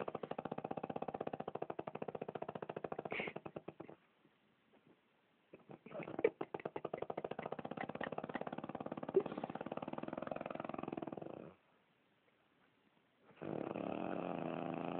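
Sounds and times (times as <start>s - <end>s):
woman snoring: 7.1s - 11.5s, 13.4s - 14.9s.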